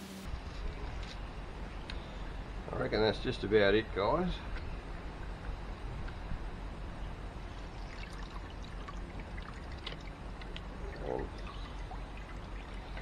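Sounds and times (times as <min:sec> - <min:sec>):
liquid pouring and trickling: 0:07.7 - 0:13.0.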